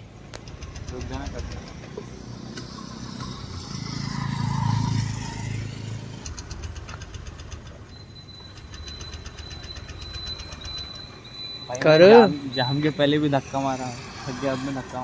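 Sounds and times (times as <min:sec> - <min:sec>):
scooter engine cranking: 0:00.3 - 0:04.3, 0:05.2 - 0:12.0.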